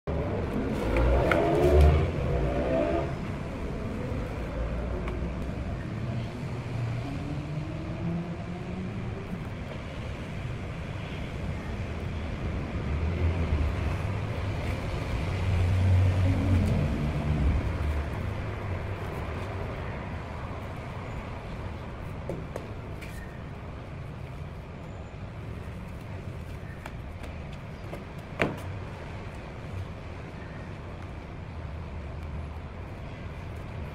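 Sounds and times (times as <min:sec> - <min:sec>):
heavy vehicle rumble: 0:00.0 - 0:30.2
road traffic rumble: 0:00.0 - 0:33.9
engine rising in pitch: 0:00.1 - 0:04.9.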